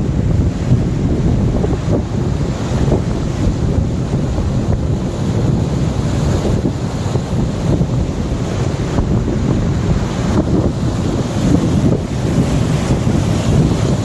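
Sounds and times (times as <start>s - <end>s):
boat wake churning: 0.0s - 14.0s
wind buffeting microphone: 0.0s - 14.0s.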